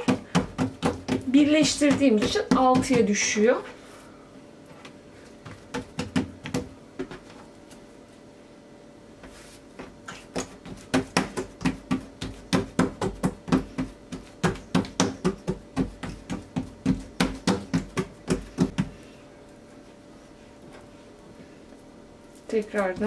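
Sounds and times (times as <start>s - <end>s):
hands slapping dough: 0.0s - 3.4s, 5.4s - 7.3s, 9.7s - 19.0s.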